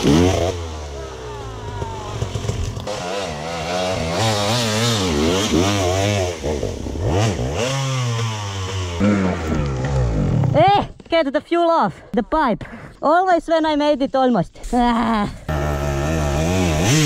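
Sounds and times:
dirt bike engine revving: 0.0 - 10.6, 15.5 - 17.0.

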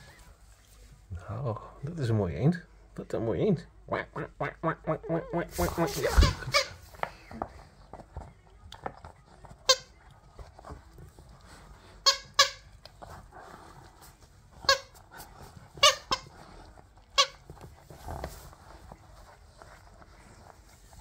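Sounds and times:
toy squeaker squeaking: 12.0 - 12.7, 15.8 - 16.3.

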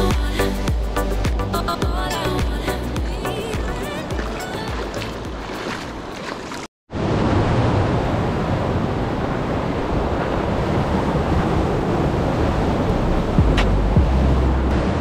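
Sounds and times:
surf breaking on rocks: 1.8 - 15.0
wind buffeting microphone: 4.1 - 15.0.

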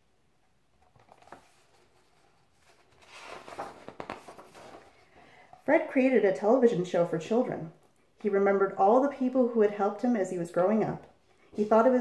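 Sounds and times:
paper page rustling: 0.8 - 5.2.

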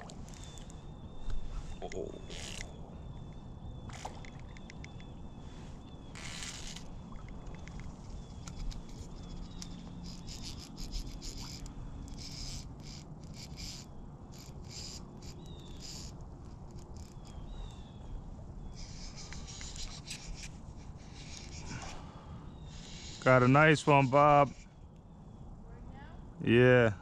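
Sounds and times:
fly reel clicker ratcheting: 6.1 - 17.5.

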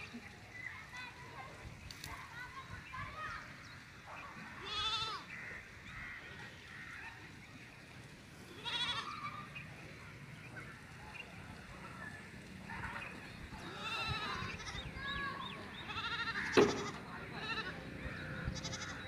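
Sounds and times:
young goats bleating: 4.5 - 5.4, 8.4 - 9.6, 13.6 - 19.0.

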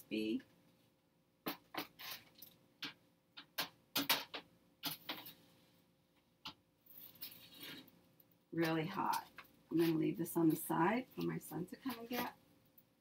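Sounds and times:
pizza scraping on baking tray: 7.0 - 7.9.

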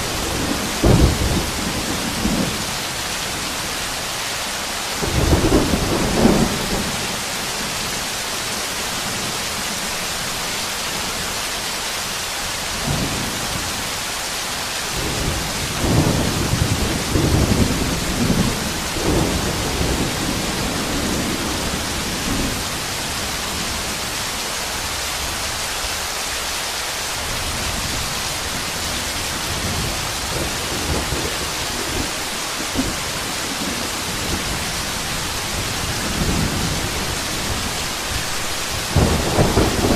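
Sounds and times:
thunder rumbling: 0.0 - 2.9, 14.9 - 24.2, 27.5 - 39.9
heavy rain pouring: 0.0 - 39.9.

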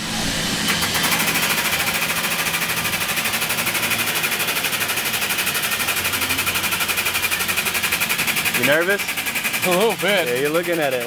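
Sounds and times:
low hum: 0.0 - 4.0
hydraulic press pump pulsing: 0.0 - 11.0.

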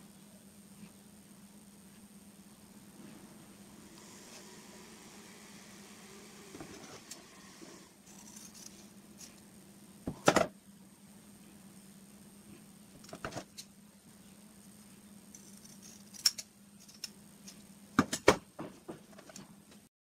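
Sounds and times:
faint steady hum: 0.0 - 19.9
hands rustling small parts: 8.0 - 9.5.

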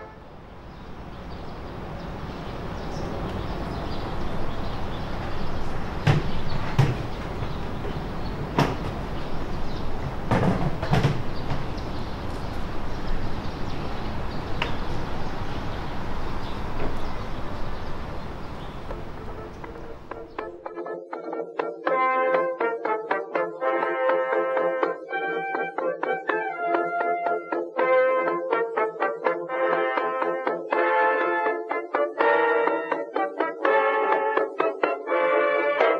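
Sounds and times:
steady background noise: 0.0 - 20.4
sharp knocks: 5.7 - 12.7.

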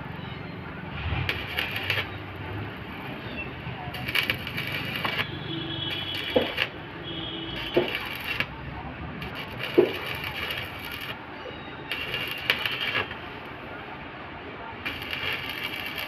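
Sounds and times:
welding arc crackling: 1.0 - 13.7, 14.7 - 16.0.

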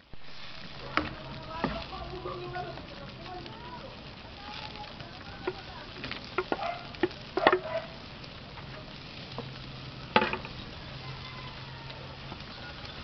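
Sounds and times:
food sizzling in a wok: 0.0 - 13.0
stirring clatters in a wok: 4.6 - 7.8
peas dropping into a pan: 5.2 - 7.8, 9.4 - 10.6.

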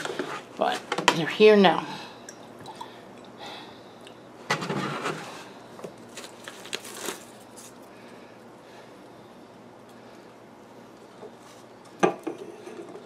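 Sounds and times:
tissue paper rustling: 6.1 - 7.8.

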